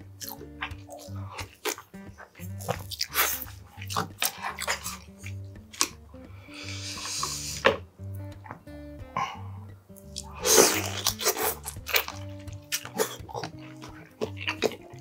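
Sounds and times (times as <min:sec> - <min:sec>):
background music: 0:00.0 - 0:15.0
person eating crab: 0:00.1 - 0:15.0
chewing clicks and mouth smacks: 0:00.2 - 0:06.0, 0:09.9 - 0:15.0.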